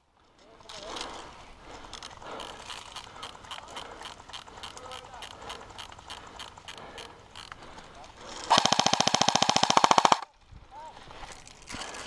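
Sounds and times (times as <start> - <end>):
airsoft rifle full-auto burst: 8.5 - 10.3.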